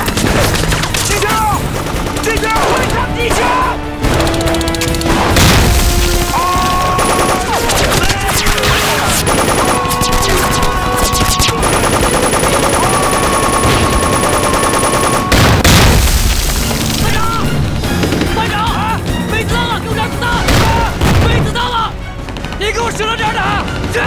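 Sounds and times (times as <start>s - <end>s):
machine-gun and rifle fire: 0.0s - 17.2s
loud blast: 5.1s - 11.9s, 15.0s - 17.6s.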